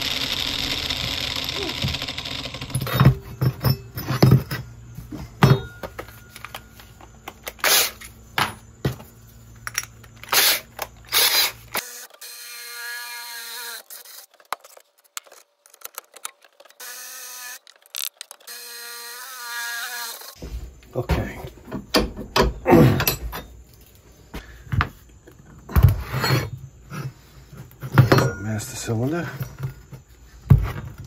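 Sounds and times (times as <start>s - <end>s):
power drill running: 0.0s - 3.3s, 10.2s - 14.3s, 16.8s - 20.4s
tools knocking on a workbench: 5.4s - 6.1s.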